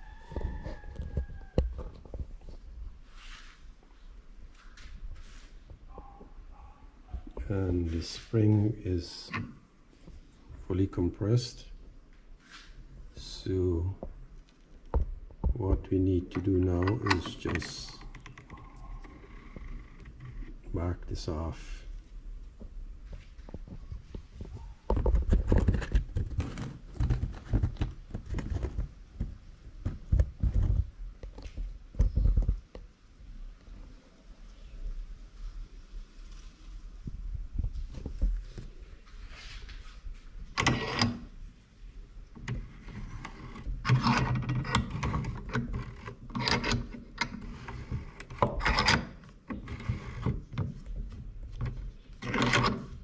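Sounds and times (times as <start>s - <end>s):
metal scraping and rubbing: 40.6s - 41.3s, 42.4s - 53.0s.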